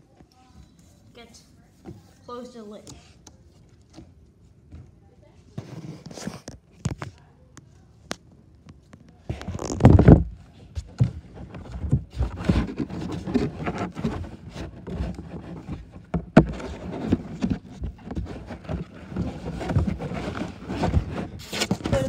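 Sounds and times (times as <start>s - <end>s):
knocks and scrapes: 5.5s - 7.1s, 9.3s - 22.0s
microphone handling thump: 9.4s - 11.2s.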